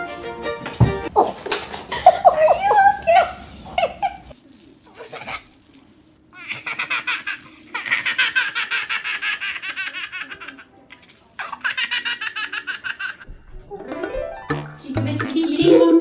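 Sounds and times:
baby giggling: 5.0 - 5.5, 6.4 - 13.3.

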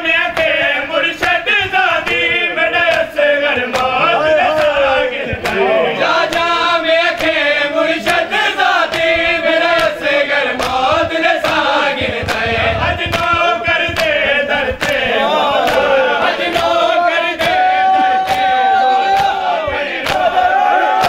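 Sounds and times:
men chanting together: 0.0 - 21.0
bare-hand chest slaps: 8.9 - 15.0, 17.4 - 20.4.

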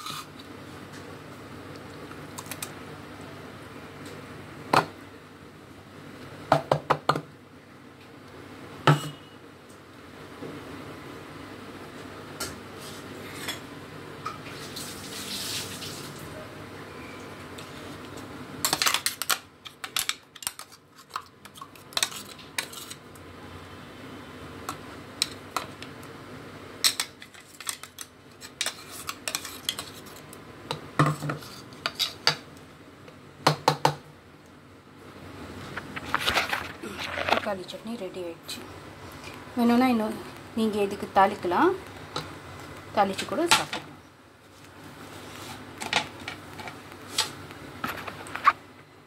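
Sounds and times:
spoon scraping a jar: 0.0 - 0.3, 20.0 - 23.0, 27.2 - 30.2, 31.1 - 32.2.

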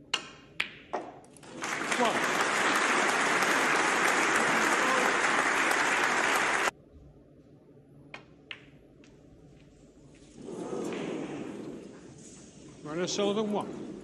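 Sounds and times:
snooker balls clicking: 0.1 - 1.4, 8.1 - 9.2
audience applauding: 1.4 - 6.7.

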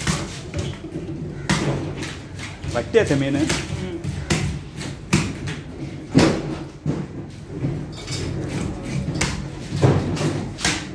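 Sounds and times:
market hubbub: 0.0 - 10.9
knife chopping fish on wood: 8.5 - 10.9.

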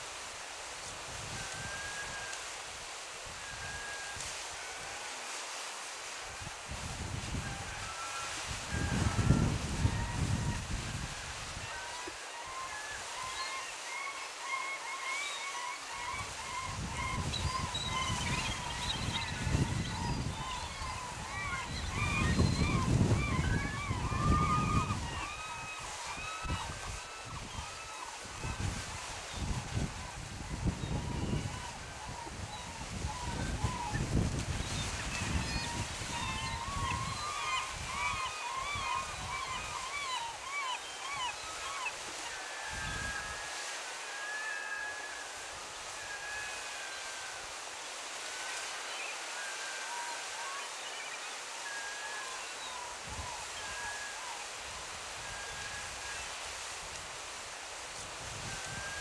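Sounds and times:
wind rumble on microphone: 6.4 - 11.6, 16.2 - 25.3, 26.4 - 38.2, 58.0 - 59.0.

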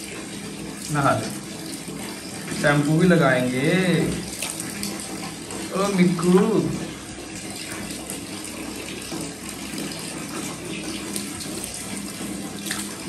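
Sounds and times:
water running from tap: 0.0 - 13.0
water splashing on wet dog: 0.8 - 6.9, 8.9 - 13.0.

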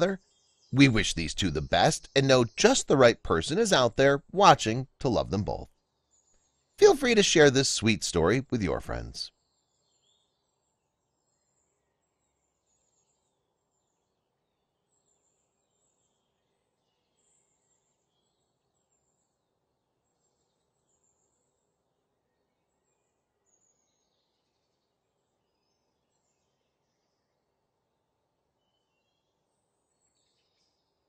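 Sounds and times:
faint background hiss: 0.0 - 9.9
faint high chirps: 0.8 - 5.7.

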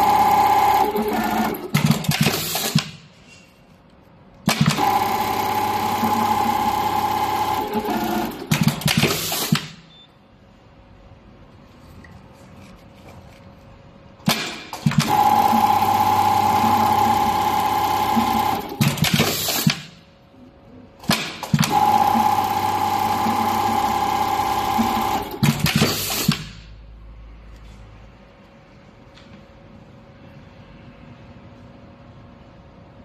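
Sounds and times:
sewing machine high whine: 0.0 - 2.8, 4.5 - 9.5, 14.8 - 19.7, 21.5 - 26.3.

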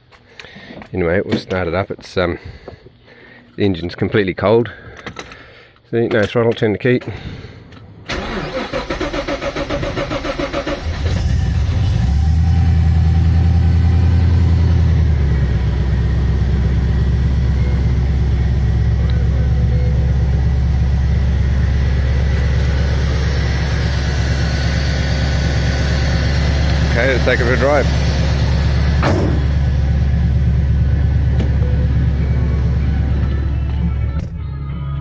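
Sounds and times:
car engine starting and idling: 8.0 - 34.4
starter motor cranking: 8.1 - 11.8.

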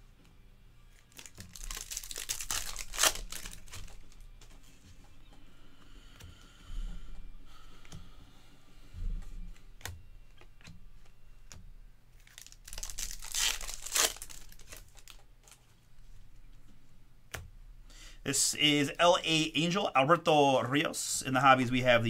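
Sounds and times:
foil card pack tearing and crinkling: 1.0 - 4.2, 12.2 - 15.2
cards flicked with clicks and rustles: 9.2 - 12.9.

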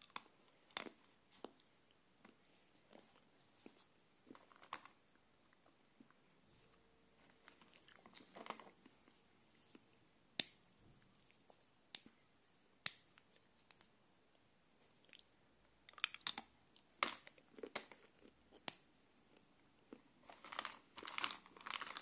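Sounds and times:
chocolate shell snapping: 10.3 - 10.6, 12.8 - 13.8
chocolate pieces clicking and shuffling: 20.2 - 22.0.

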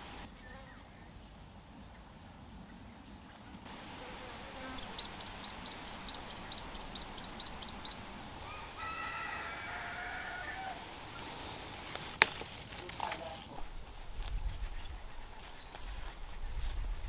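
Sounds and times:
small bird chirping: 3.8 - 9.5
faint rooster crowing: 4.0 - 11.4.

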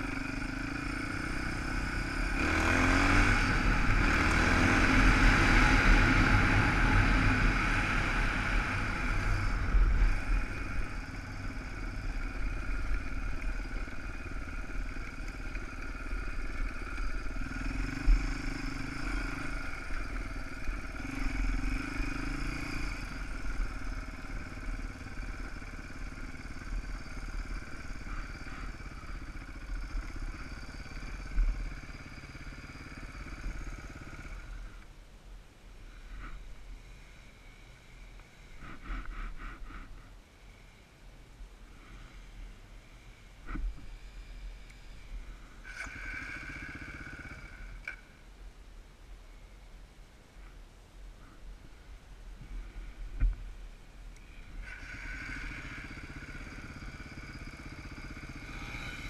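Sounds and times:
motorcycle engine revving: 0.0 - 34.8, 41.7 - 48.2, 54.2 - 59.0.

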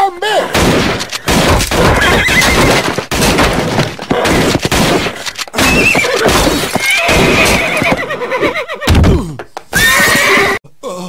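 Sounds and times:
hooves stamping and crashing: 0.6 - 10.2
horse neighing: 1.8 - 3.0, 5.7 - 8.9, 9.8 - 10.6.

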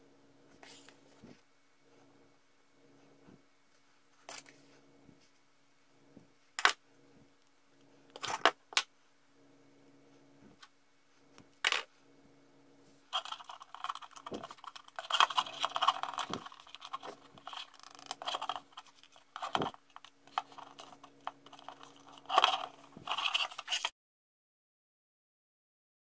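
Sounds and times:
faint steady hum: 0.0 - 23.9
small plastic parts clicking and rattling: 13.2 - 23.9.

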